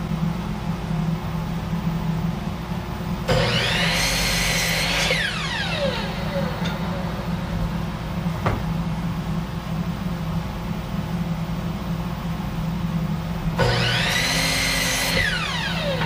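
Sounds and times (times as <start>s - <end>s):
miter saw motor whining: 3.3s - 7.6s, 13.6s - 16.0s
low hum: 5.3s - 10.5s.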